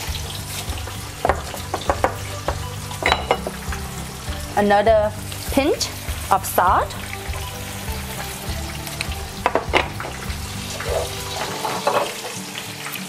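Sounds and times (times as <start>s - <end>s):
fish sizzling in hot oil: 0.0s - 13.0s
utensil knocks: 0.7s - 3.7s, 9.4s - 12.3s.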